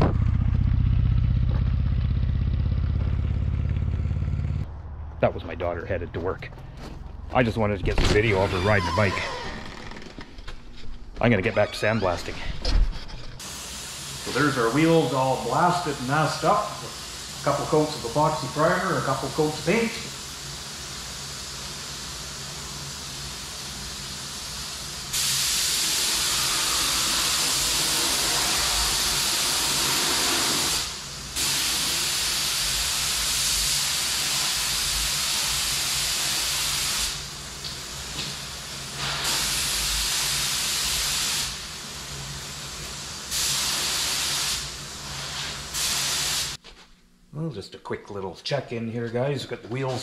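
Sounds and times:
spray gun hissing: 13.4s - 46.6s.

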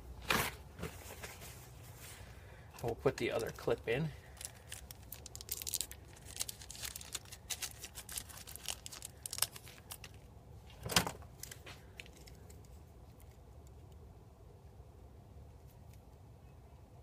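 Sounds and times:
paper and plastic crinkling: 2.8s - 13.4s.

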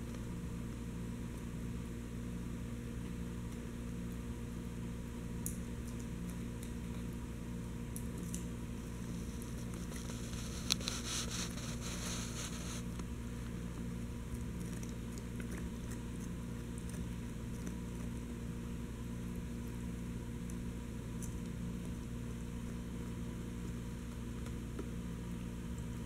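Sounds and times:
low background hum: 0.0s - 26.0s
crunching: 8.0s - 18.4s.

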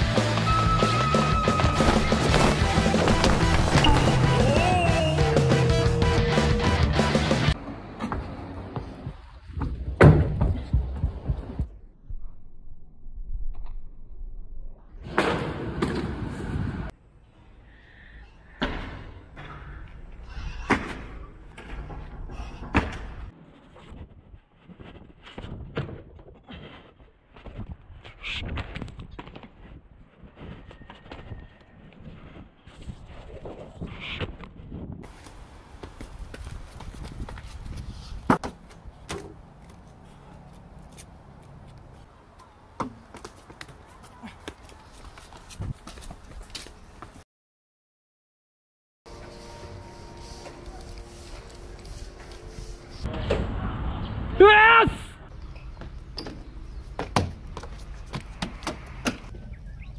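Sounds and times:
running footsteps: 35.1s - 38.8s, 42.9s - 47.2s
feet landing on a railing: 55.8s - 59.3s.

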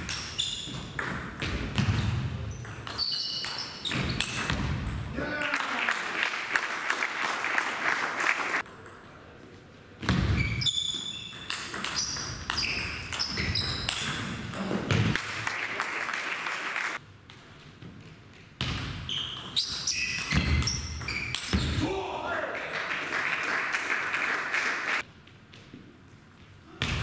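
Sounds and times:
shoes squeaking on floor: 0.0s - 1.0s, 1.8s - 4.5s, 10.2s - 14.8s, 18.3s - 21.8s.

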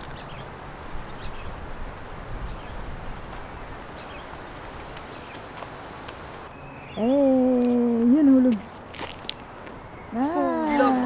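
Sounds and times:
wind on microphone: 0.0s - 6.4s.

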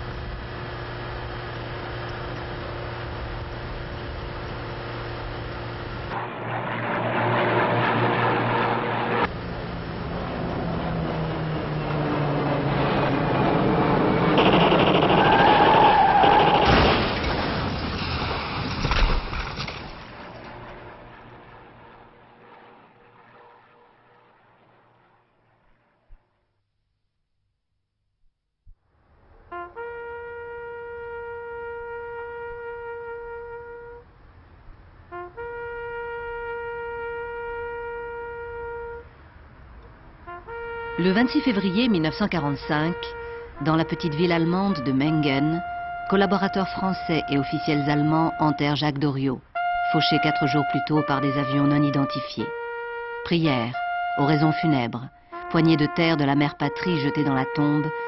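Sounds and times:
aircraft engine drone: 0.0s - 26.4s, 29.0s - 48.8s
sudden sharp burst: 12.8s - 19.2s
brass horn held notes: 29.5s - 34.2s, 35.1s - 39.4s, 40.2s - 48.9s, 49.6s - 58.0s.

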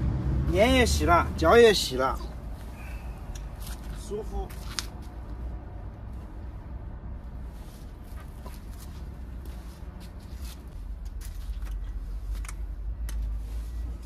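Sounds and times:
footsteps in flip-flops: 7.9s - 13.4s.

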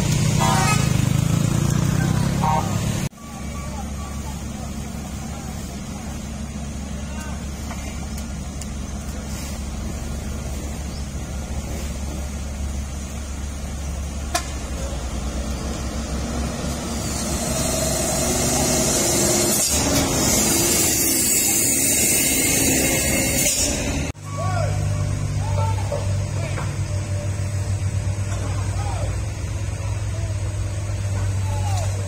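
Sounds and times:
truck driving past with hiss: 0.0s - 24.1s
diesel engines running: 0.0s - 32.0s.

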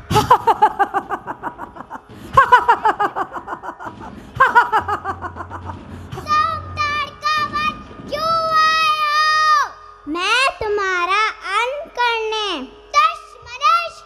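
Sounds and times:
child laughing theatrically: 0.0s - 6.5s.

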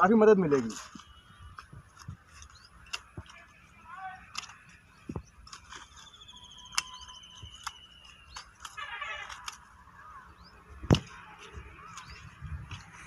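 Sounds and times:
pruning shears snipping: 0.6s - 3.5s, 4.1s - 9.8s
bird trilling: 4.8s - 10.6s.

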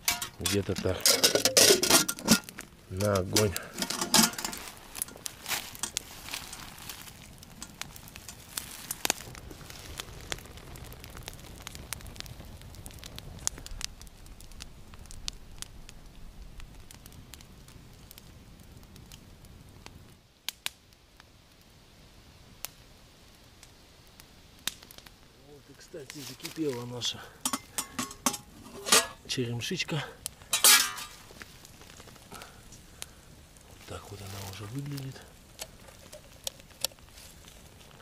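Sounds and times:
campfire crackling and popping: 0.0s - 38.0s
low rumble of flames: 0.0s - 38.0s.

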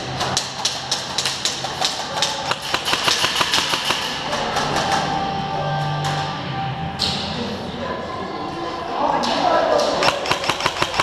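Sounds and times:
airsoft guns firing: 0.2s - 5.1s, 9.8s - 11.0s.

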